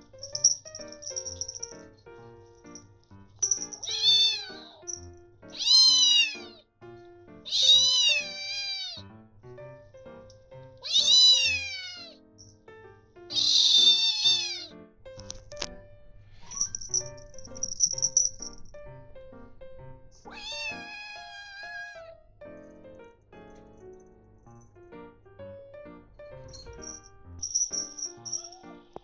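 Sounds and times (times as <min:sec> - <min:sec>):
kitten meowing: 0:03.7 - 0:06.6, 0:07.4 - 0:09.1, 0:10.8 - 0:12.2, 0:13.3 - 0:14.8, 0:20.2 - 0:22.2.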